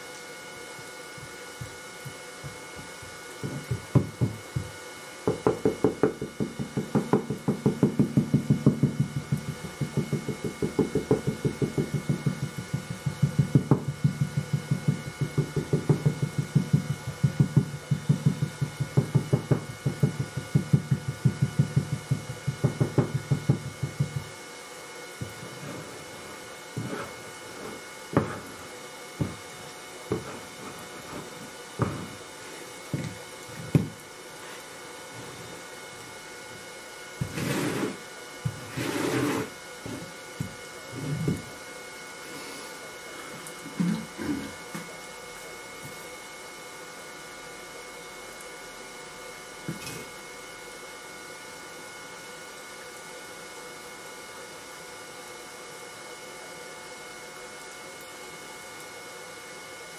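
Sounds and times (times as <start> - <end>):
wooden rammer pounding sand: 2.4 - 24.4, 26.8 - 29.5, 30.1 - 32.2, 37.2 - 41.5.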